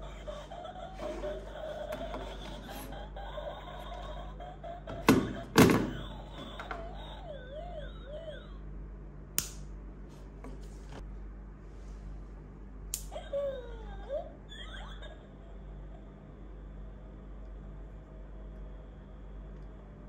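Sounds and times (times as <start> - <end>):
plastic toy knocking on table: 4.9 - 6.0
sharp click: 9.4 - 9.7.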